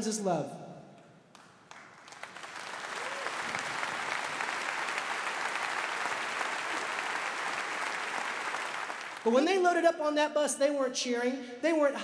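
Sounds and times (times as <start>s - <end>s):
audience applause: 1.4s - 9.3s.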